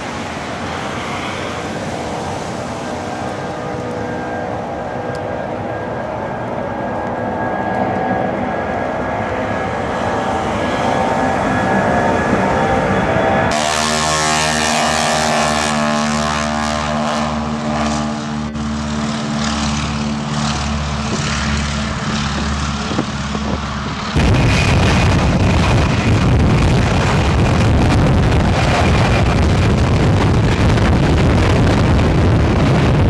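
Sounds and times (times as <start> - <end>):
jet airliner at takeoff power: 0.0 - 33.0
loud jet noise: 0.0 - 33.0
propeller plane engine buzzing: 0.0 - 33.0.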